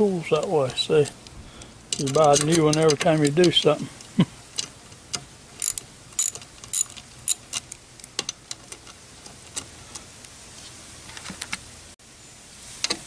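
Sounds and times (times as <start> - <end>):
light metallic clicks: 0.4 - 10.4
socket ratchet clicking: 1.9 - 10.1.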